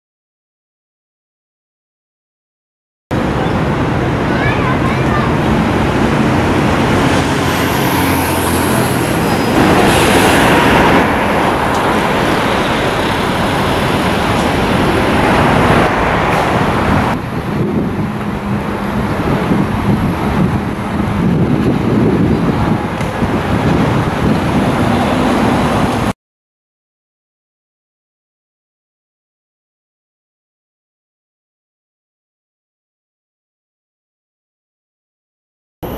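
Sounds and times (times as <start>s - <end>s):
bus engine running: 3.2s - 26.1s
passing vehicles: 3.2s - 26.2s.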